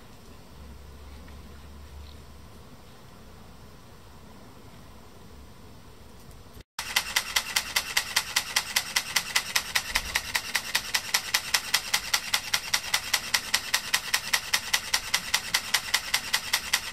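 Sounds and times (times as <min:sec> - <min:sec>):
camera shutter clicks: 0:06.8 - 0:16.9.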